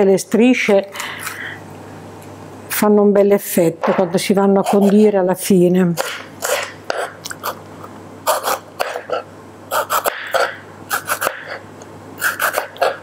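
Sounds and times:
knife slicing pepper on board: 0:08.3 - 0:11.6, 0:12.2 - 0:13.0.

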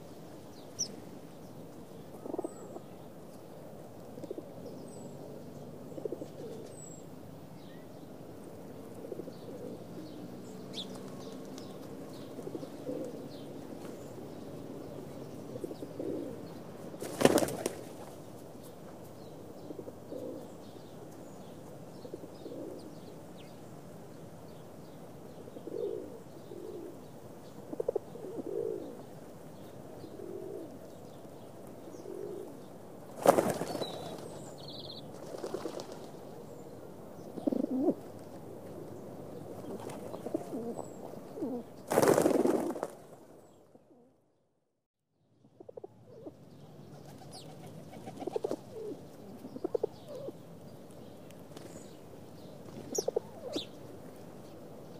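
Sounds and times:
pigeons cooing: 0:02.1 - 0:02.9, 0:05.8 - 0:06.8, 0:08.7 - 0:13.4, 0:15.3 - 0:18.0, 0:19.6 - 0:20.6, 0:22.0 - 0:22.9, 0:25.5 - 0:29.2, 0:30.0 - 0:30.9, 0:31.9 - 0:34.4, 0:37.2 - 0:42.6, 0:47.1 - 0:50.4, 0:52.7 - 0:53.7
wingbeats flurry: 0:17.0 - 0:18.2, 0:33.2 - 0:36.2, 0:41.8 - 0:43.2.

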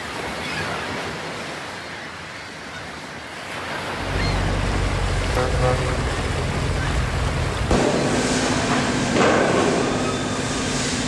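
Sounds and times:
sea surf: 0:00.0 - 0:11.0
boat engine rumble: 0:03.5 - 0:11.0.

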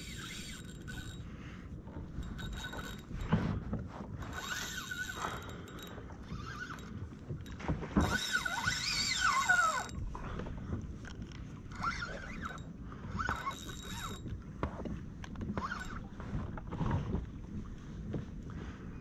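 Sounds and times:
fishing reel drag buzzing: 0:00.0 - 0:03.4, 0:04.2 - 0:10.0, 0:11.7 - 0:14.3, 0:15.6 - 0:16.1.

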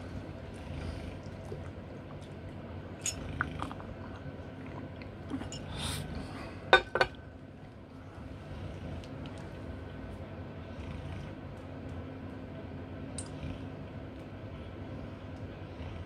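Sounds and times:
low room hum: 0:00.0 - 0:16.0
ceramic mug clinking: 0:06.8 - 0:07.2.

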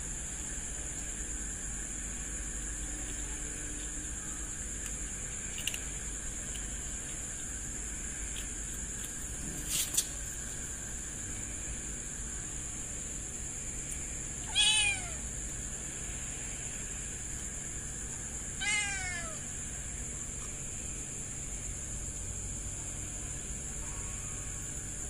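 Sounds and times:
steady hiss: 0:00.0 - 0:25.0
kitten meowing: 0:14.4 - 0:15.2, 0:18.6 - 0:19.4.

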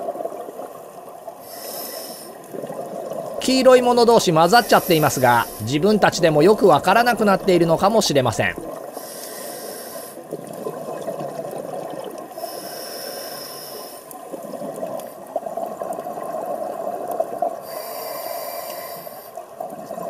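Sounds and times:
steady water noise: 0:00.0 - 0:20.0
scuba regulator hissing inhalations: 0:01.4 - 0:02.4, 0:04.4 - 0:06.0, 0:08.9 - 0:10.3, 0:12.4 - 0:14.1, 0:17.6 - 0:19.4
bubbling underwater: 0:10.3 - 0:12.3.

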